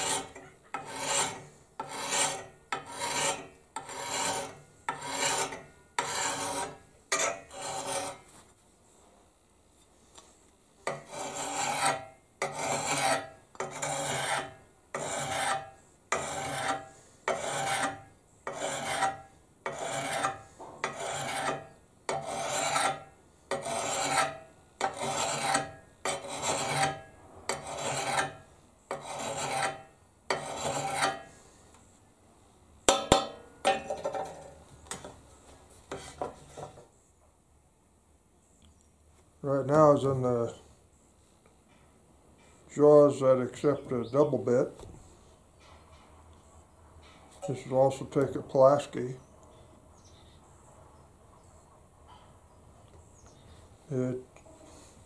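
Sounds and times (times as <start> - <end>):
file rasping on axe steel: 0.0 - 8.3, 10.9 - 31.4.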